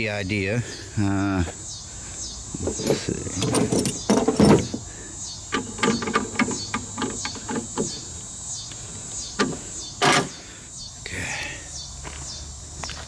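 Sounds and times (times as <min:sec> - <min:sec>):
footsteps: 0:12.0 - 0:13.0.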